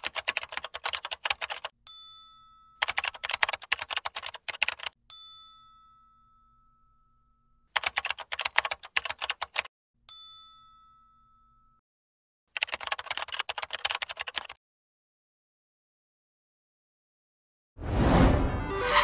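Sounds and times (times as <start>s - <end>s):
typewriter bell ding: 1.6s - 4.0s.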